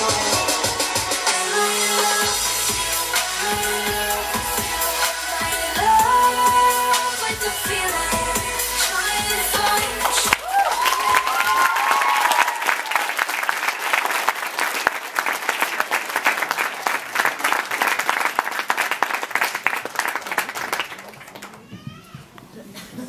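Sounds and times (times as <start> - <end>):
held musical tone: 0.0 - 10.4
audience clapping: 9.5 - 21.7.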